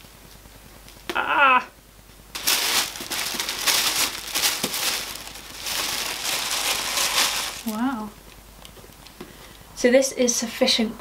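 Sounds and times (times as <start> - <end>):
tissue paper crinkling and rustling: 2.3 - 8.1.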